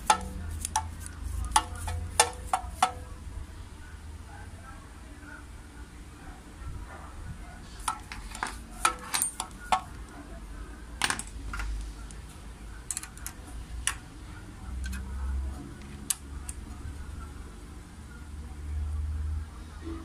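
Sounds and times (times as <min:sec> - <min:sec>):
metal keys clicking and clinking: 0:07.9 - 0:10.0, 0:12.8 - 0:13.5.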